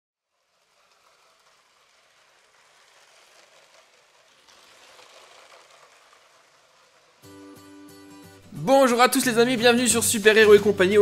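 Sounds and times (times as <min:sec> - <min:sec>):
toy train whirring rattle: 0:00.2 - 0:08.5.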